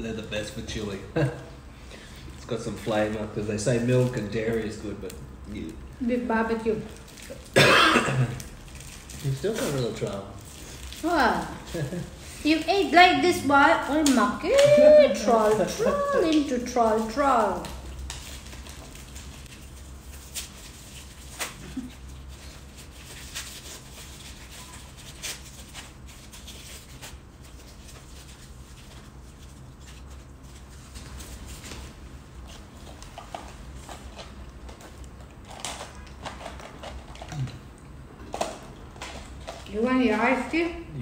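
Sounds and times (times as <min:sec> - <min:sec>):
plastic wrapper crinkling: 0:02.4 - 0:07.6, 0:08.3 - 0:13.0, 0:13.8 - 0:31.8.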